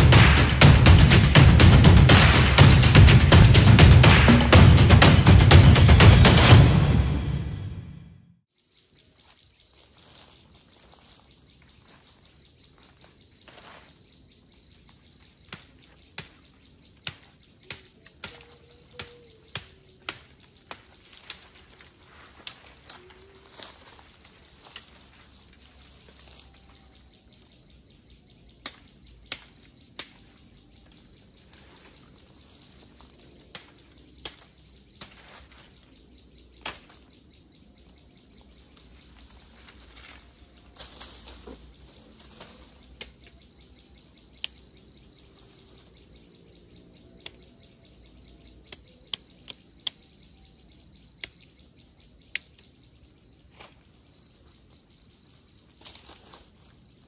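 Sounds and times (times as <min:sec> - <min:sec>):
insects chirring: 0:08.5 - 0:57.0
twigs cracking and snapping: 0:14.7 - 0:27.6, 0:28.6 - 0:35.8, 0:36.6 - 0:37.1, 0:38.4 - 0:43.4, 0:51.2 - 0:51.6.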